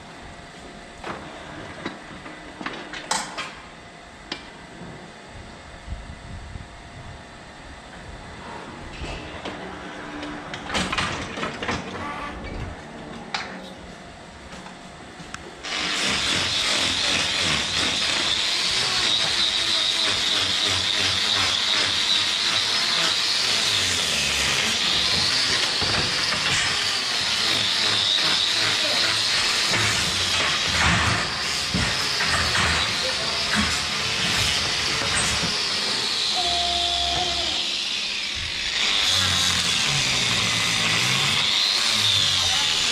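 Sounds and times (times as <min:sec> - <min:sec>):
angle grinder cutting hoof: 0:15.6 - 0:42.9.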